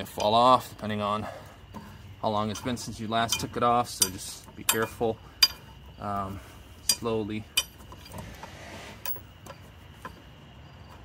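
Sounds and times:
lug wrench clinking on nut: 1.8 - 6.0, 6.8 - 8.2, 9.0 - 10.2.

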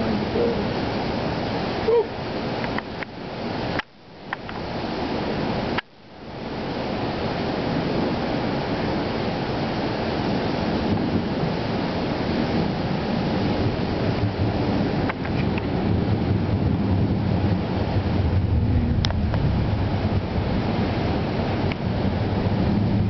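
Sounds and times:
rain: 0.0 - 23.0
wind on microphone: 0.0 - 23.0.

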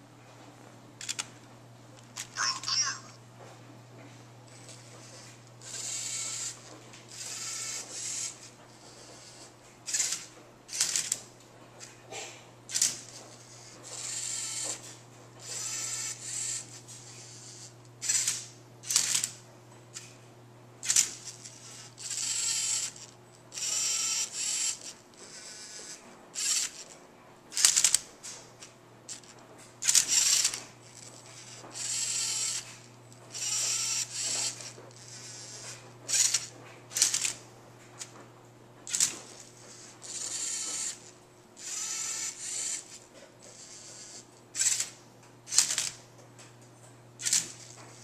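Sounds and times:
robot servo motors whirring: 4.6 - 11.2, 12.7 - 14.8, 15.4 - 19.3, 20.8 - 26.9, 27.5 - 28.0, 29.1 - 37.4, 38.9 - 46.0, 47.2 - 48.0.

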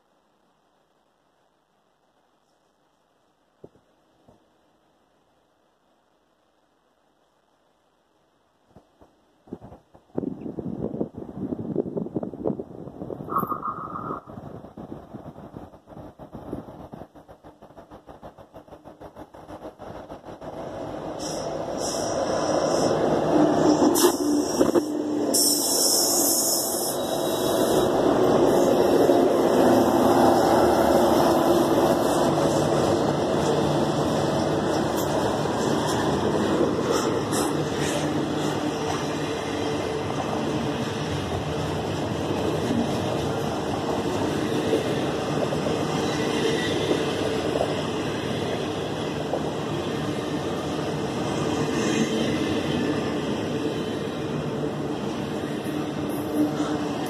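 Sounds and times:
train wheels rumbling on rails: 8.7 - 57.0
diesel locomotives passing: 10.9 - 57.0
brief air hiss: 21.2 - 23.0, 23.8 - 27.7.

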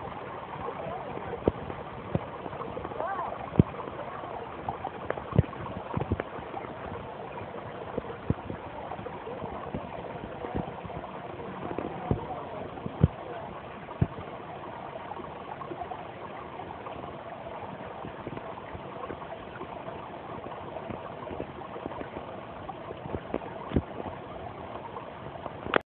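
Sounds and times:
brook babbling over stones: 0.0 - 25.8.

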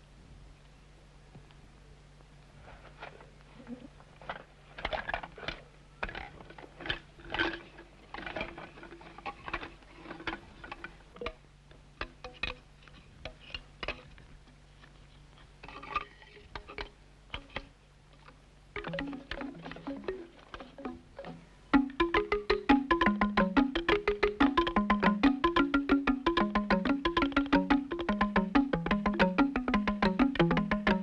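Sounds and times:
bamboo tubes tapping on stone: 4.8 - 14.9, 15.6 - 31.0.

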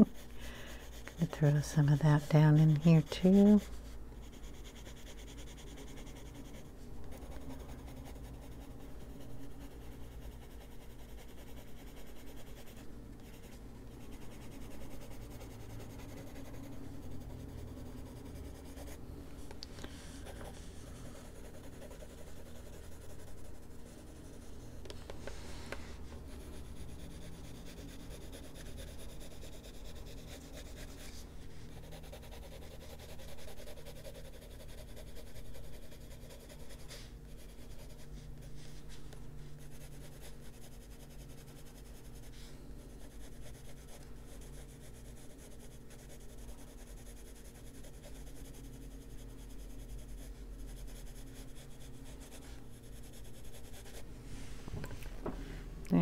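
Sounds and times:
pencil scratching on paper: 0.0 - 19.0, 19.9 - 54.1.

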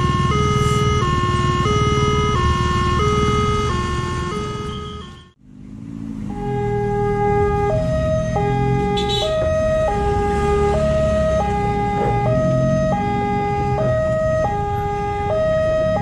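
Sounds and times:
level crossing two-tone alarm: 0.0 - 5.4, 10.6 - 16.0
vehicle engines rumbling: 0.0 - 16.0.

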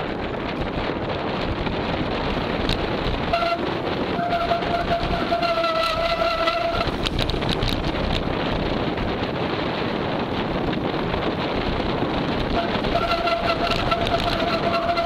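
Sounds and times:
tyres rolling on trail: 0.0 - 15.0
wind: 0.0 - 15.0
bicycle brakes squealing: 4.2 - 7.0, 12.6 - 15.0.

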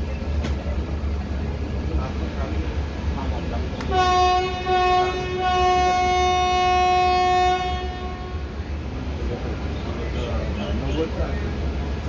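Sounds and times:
locomotive horn honking: 3.9 - 8.6.

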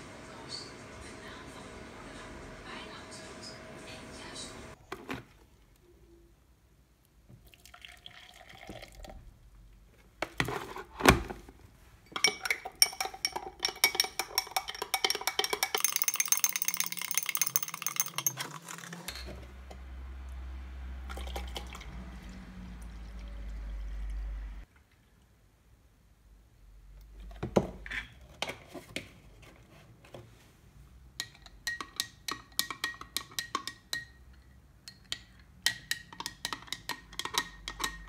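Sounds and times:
water pouring into a glass: 7.4 - 9.2, 21.0 - 24.5
milk pouring into a glass: 7.4 - 9.3, 21.0 - 25.1
spoon clinking against glass: 12.2 - 18.5.

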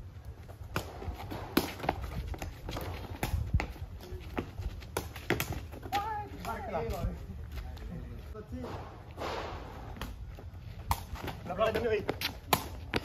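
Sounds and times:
running footsteps on concrete: 0.2 - 8.5, 10.1 - 13.0
foot kicking ball: 0.6 - 7.0, 9.9 - 13.0.

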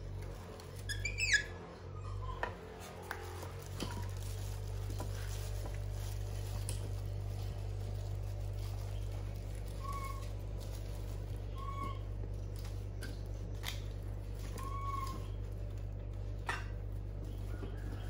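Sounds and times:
steady low hum: 0.0 - 18.0
monkey squeaks: 0.8 - 2.4, 9.7 - 10.4, 11.6 - 12.1, 14.5 - 15.4
plastic bag crinkling: 2.6 - 16.1.

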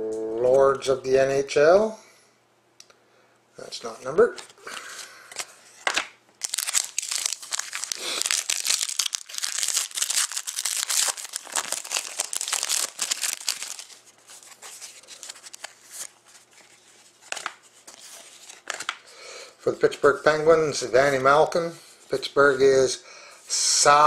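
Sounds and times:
cards rustling: 3.8 - 19.1
foil wrapper tearing and crinkling: 6.4 - 16.1.

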